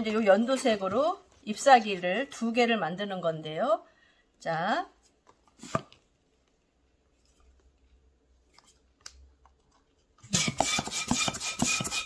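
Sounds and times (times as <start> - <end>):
hand pump rush of air: 10.3 - 12.0.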